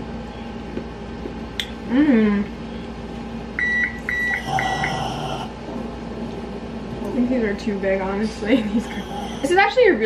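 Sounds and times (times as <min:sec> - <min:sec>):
steady appliance hum: 0:00.0 - 0:10.0
appliance beeps: 0:03.6 - 0:05.1.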